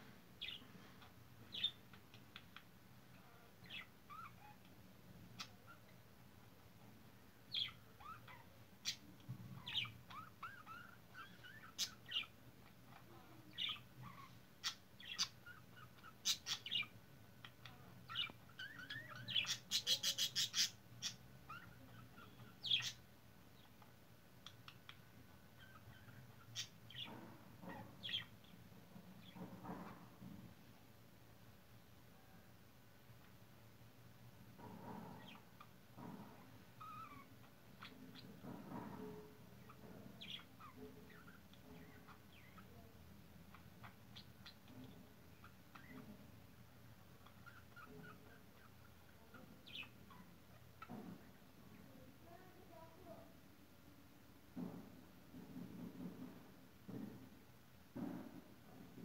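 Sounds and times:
budgerigar warbling and chattering: 0:12.9 - 0:16.9, 0:17.5 - 0:23.0, 0:47.2 - 0:50.6.

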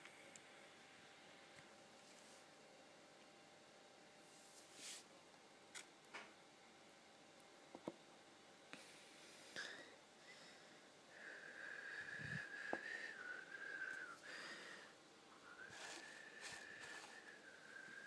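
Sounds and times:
faint wavering whistling: 0:11.2 - 0:14.4, 0:15.3 - 0:18.0.

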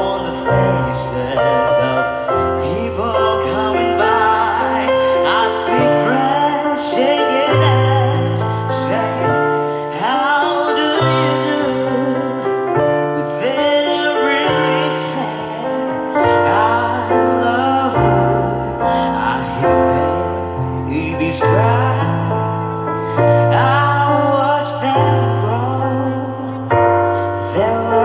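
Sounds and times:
keyboard and piano chords: 0:00.0 - 0:28.0
man singing: 0:00.0 - 0:28.0.

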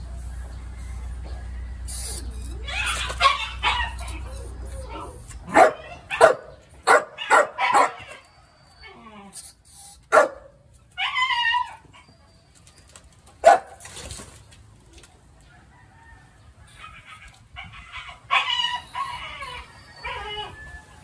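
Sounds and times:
dog whining: 0:01.9 - 0:06.5, 0:07.2 - 0:10.2, 0:16.8 - 0:20.8.

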